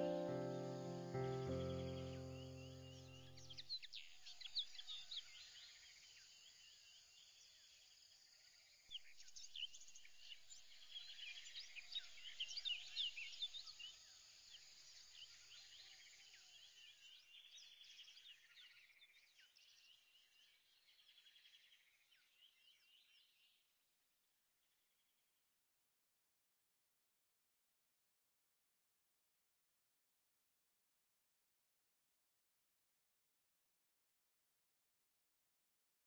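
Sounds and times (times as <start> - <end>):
birds chirping: 0.0 - 4.1.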